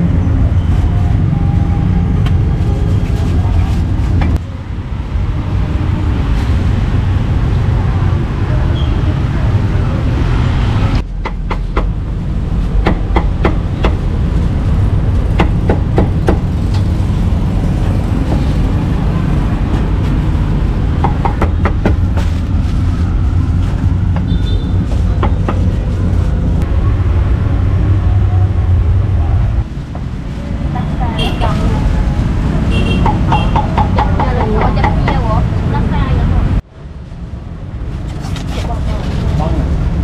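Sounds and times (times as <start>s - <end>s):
steady low rumble: 24.8s - 32.7s.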